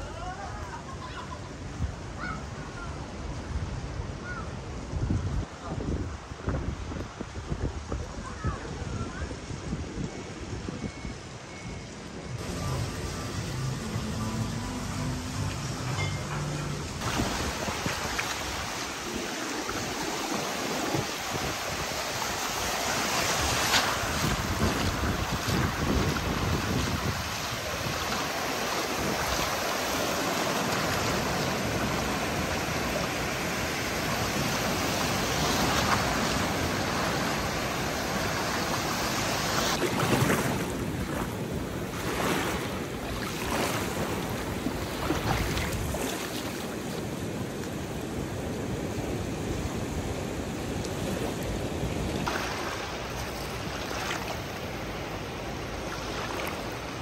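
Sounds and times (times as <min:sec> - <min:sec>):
surf breaking on a beach: 0:17.0 - 0:57.0.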